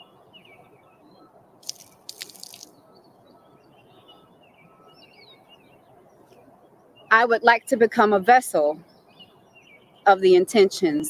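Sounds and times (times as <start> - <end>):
birds chirping: 0.0 - 11.0
water splashing onto ground: 1.6 - 2.7.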